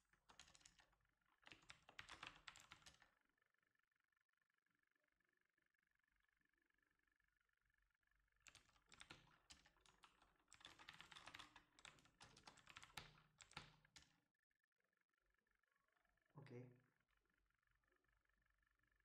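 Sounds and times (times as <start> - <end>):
computer keyboard typing: 0.2 - 3.1, 8.4 - 14.1.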